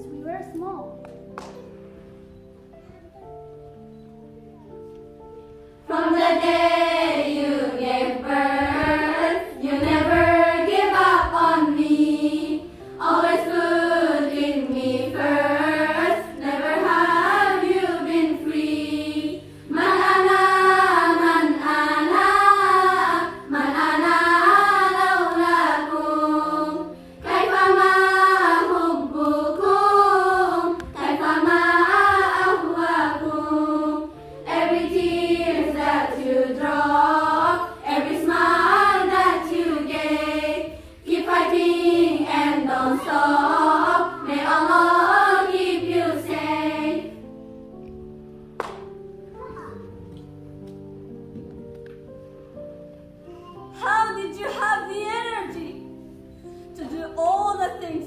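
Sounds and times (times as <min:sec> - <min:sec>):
low held accompaniment: 0:00.0 - 0:58.0
girls' choir singing: 0:05.8 - 0:47.4.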